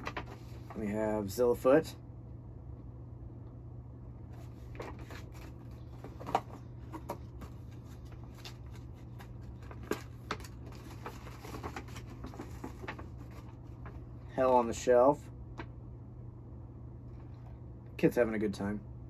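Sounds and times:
paper rustling and crackling: 0.0 - 0.9, 4.3 - 14.3.

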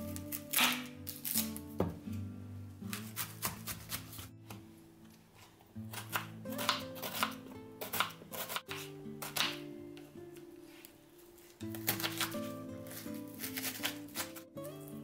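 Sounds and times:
background music: 0.0 - 5.0, 5.7 - 15.0
knife slicing onion on board: 2.9 - 4.6, 5.9 - 9.7, 11.6 - 14.4.

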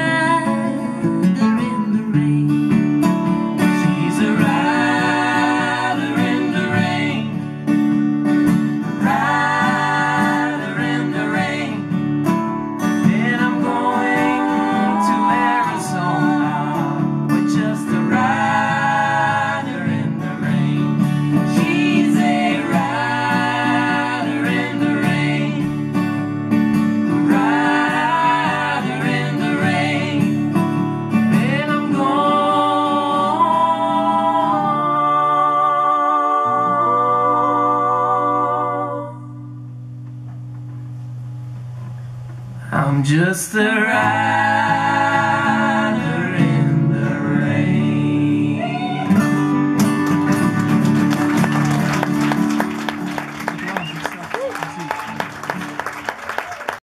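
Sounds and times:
voices singing in harmony: 0.0 - 2.4, 3.6 - 39.6, 43.1 - 49.8
acoustic guitars strumming: 0.0 - 56.3.

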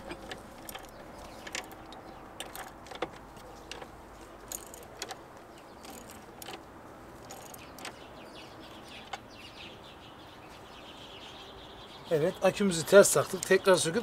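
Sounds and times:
birds calling faintly: 0.0 - 14.0
socket wrench clicking: 0.2 - 6.6, 7.2 - 8.0.

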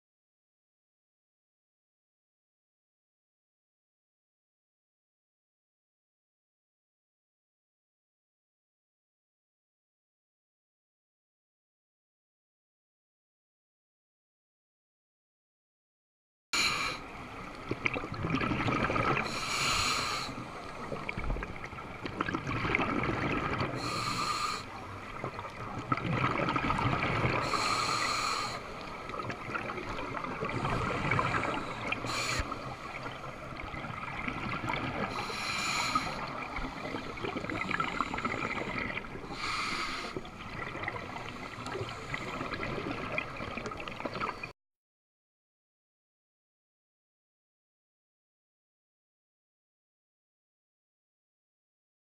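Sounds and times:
diver breathing through regulator: 16.6 - 17.0, 19.2 - 20.8, 23.8 - 24.7, 27.4 - 28.9, 30.5 - 33.2, 35.0 - 40.3
exhaled bubbles rushing: 17.7 - 19.3, 20.9 - 23.8, 25.1 - 27.6, 29.1 - 32.2, 32.9 - 35.2.

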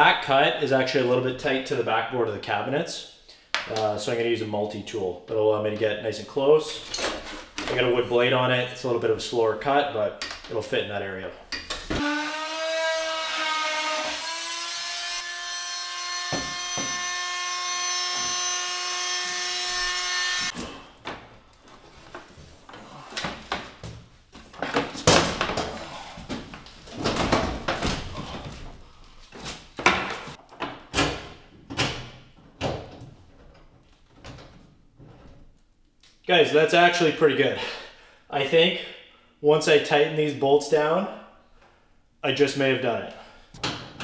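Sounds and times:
oscillating multi-tool buzzing: 12.0 - 20.6.

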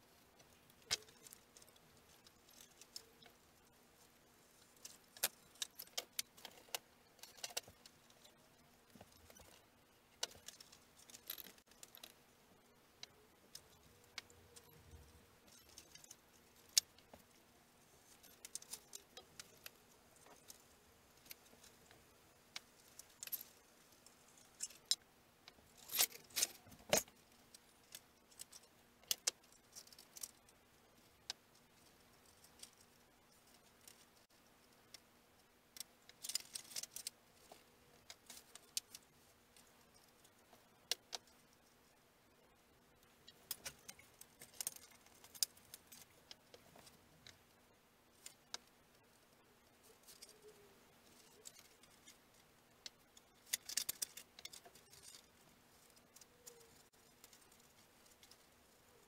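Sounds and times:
faint steady hum: 0.0 - 59.0
hands handling small tools: 0.4 - 3.4, 12.9 - 35.0, 35.8 - 41.5, 43.3 - 47.5, 48.2 - 59.0.

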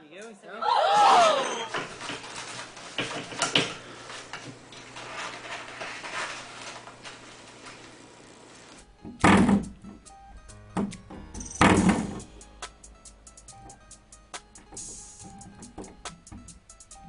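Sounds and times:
cat pawing paper roll: 1.7 - 8.0.

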